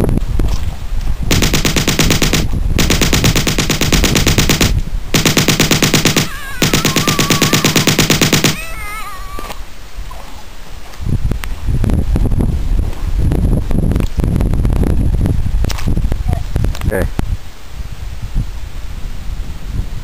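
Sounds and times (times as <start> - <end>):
machine gun firing bursts: 1.3 - 8.6.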